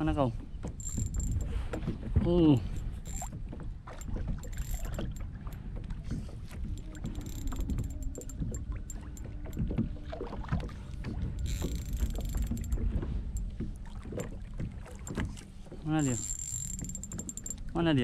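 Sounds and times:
water lapping against kayak hull: 0.0s - 18.0s
small clicks and knocks: 6.5s - 9.9s, 11.4s - 14.4s, 15.0s - 17.7s.

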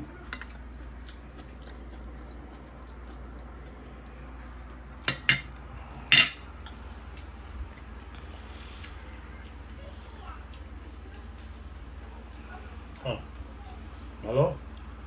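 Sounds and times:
low steady hum: 0.0s - 15.0s
cutlery clinking on plate: 5.1s - 6.4s.

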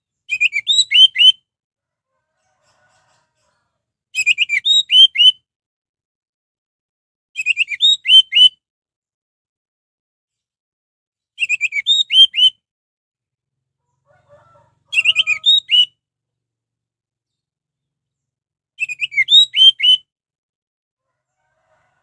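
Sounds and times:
thrush singing whistled notes: 0.3s - 1.4s, 4.2s - 5.4s, 7.4s - 8.6s, 11.4s - 12.6s, 14.9s - 16.0s, 18.8s - 20.1s.

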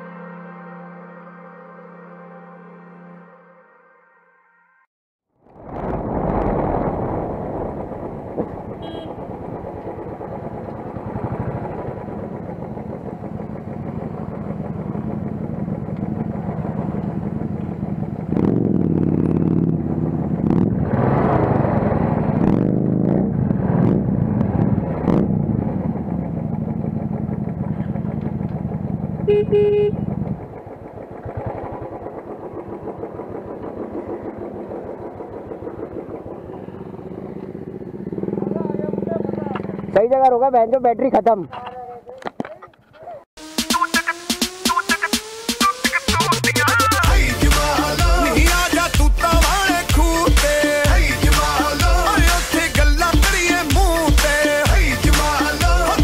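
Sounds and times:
motorcycle engine running: 8.2s - 40.8s
short horn toot: 8.8s - 9.2s, 29.3s - 30.1s.

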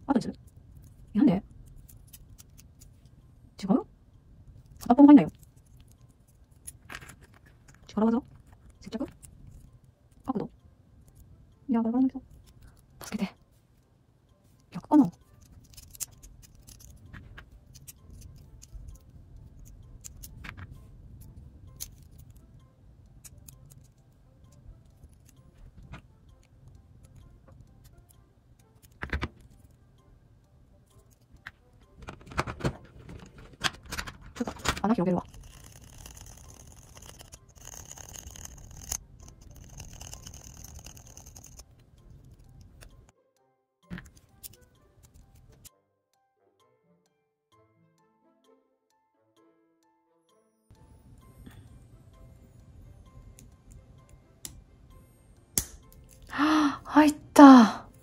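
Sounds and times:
plastic model parts clicking: 0.7s - 3.1s, 15.1s - 22.4s, 23.2s - 29.8s, 30.9s - 43.1s, 43.9s - 45.7s
needle file rasping in plastic: 34.4s - 41.6s.

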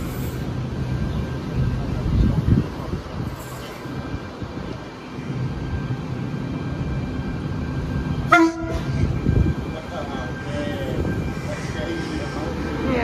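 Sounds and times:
train rumbling: 0.0s - 13.0s
train horn blast: 8.2s - 9.2s.

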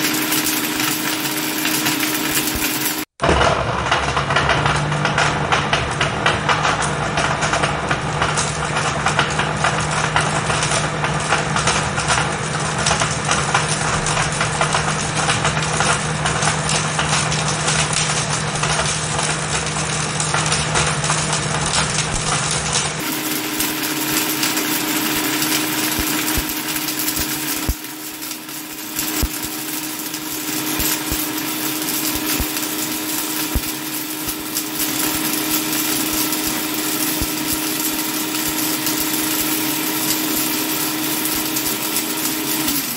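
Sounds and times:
blender motor running: 0.0s - 8.7s, 20.4s - 42.9s
plastic pieces whirling in jar: 0.0s - 42.9s.

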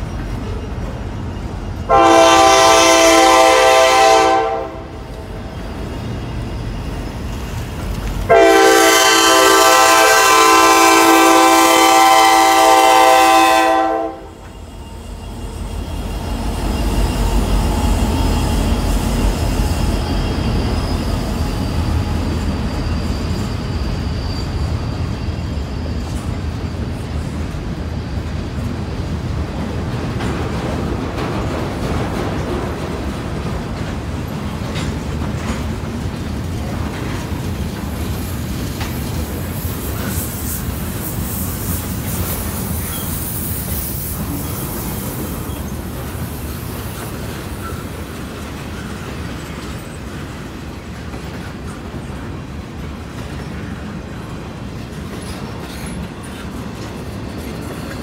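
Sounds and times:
train rumbling past: 0.0s - 58.0s
locomotive air horn: 1.9s - 5.0s, 8.3s - 14.4s.

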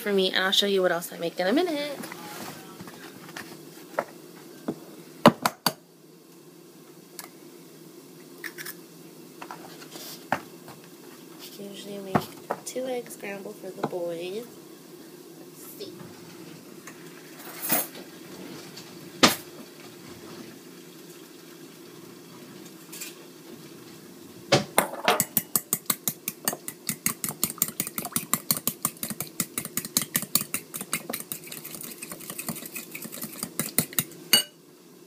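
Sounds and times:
fork whisking eggs in a bowl: 25.2s - 34.2s.

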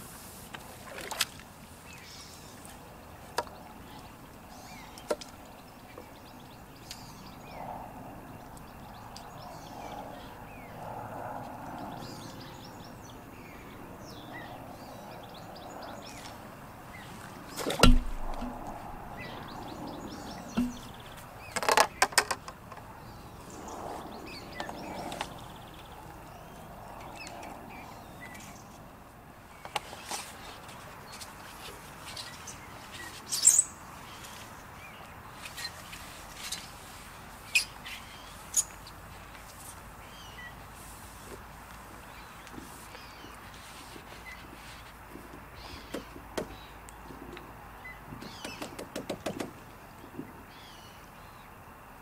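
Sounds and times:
heavy thump: 17.7s - 18.8s, 20.5s - 21.0s.

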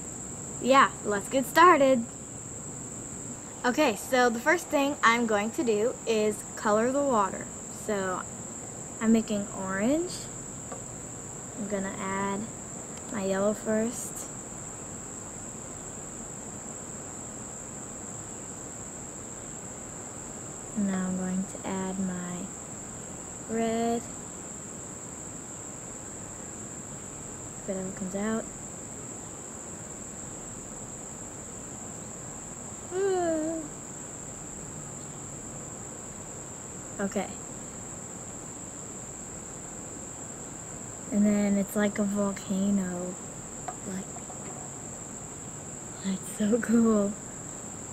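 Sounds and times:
faint background hiss: 0.0s - 47.9s
high-pitched insect chorus: 0.0s - 47.9s.

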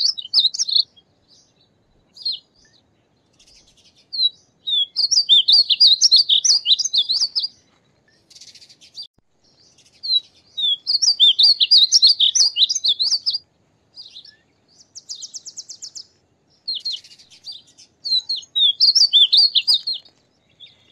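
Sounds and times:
bird warbling song: 0.0s - 20.9s
bird buzzy trill: 3.4s - 7.6s.

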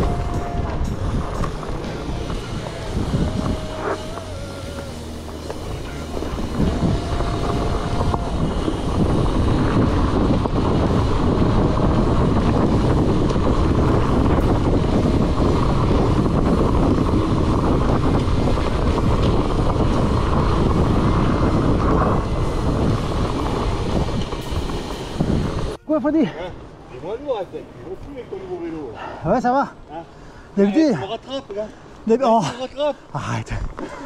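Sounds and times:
mountain bike rattling on dirt trail: 0.0s - 25.8s
wind buffeting microphone: 0.0s - 28.9s.

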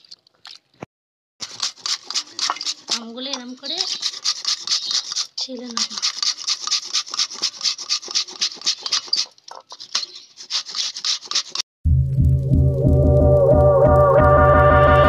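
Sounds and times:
mango grated on box grater: 1.4s - 11.6s
music: 11.9s - 15.0s.

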